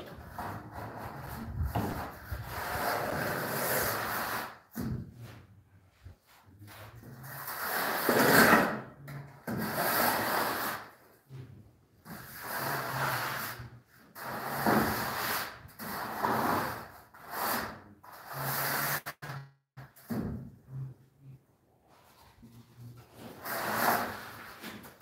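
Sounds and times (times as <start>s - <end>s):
straightedge scraping screed: 0.2s - 4.6s, 23.1s - 25.0s.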